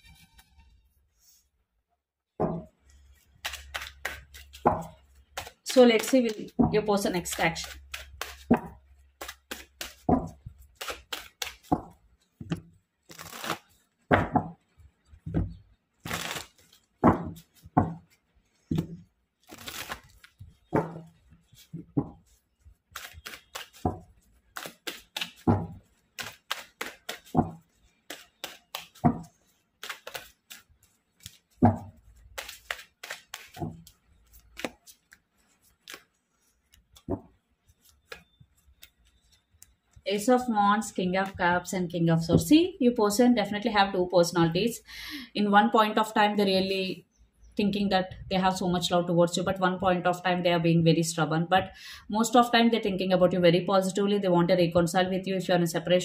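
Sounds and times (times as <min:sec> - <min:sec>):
cards being shuffled by hand: 0:02.9 - 0:40.0.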